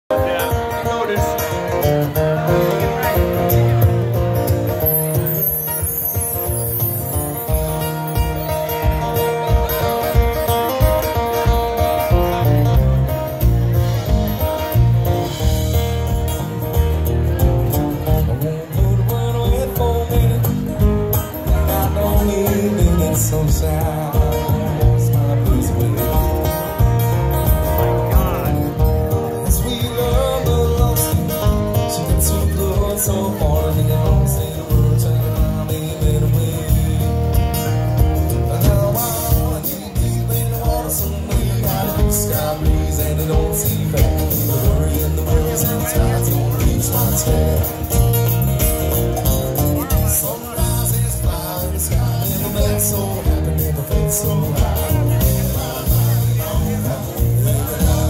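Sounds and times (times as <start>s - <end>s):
drum kit: 0.1s - 58.0s
strummed acoustic guitar: 0.1s - 58.0s
electric bass line: 1.7s - 58.0s
person singing lead vocal: 17.7s - 58.0s.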